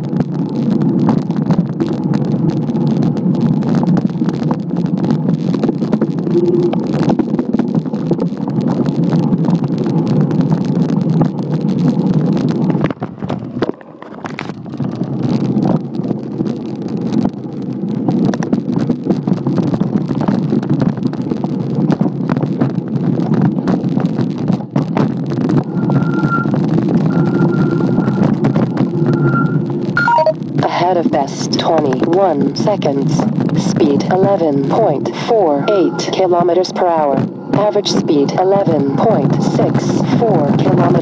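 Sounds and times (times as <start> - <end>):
bike rumbling on rough trail: 0.0 - 30.8, 33.2 - 35.0
bike rattles and knocks: 7.0 - 27.1.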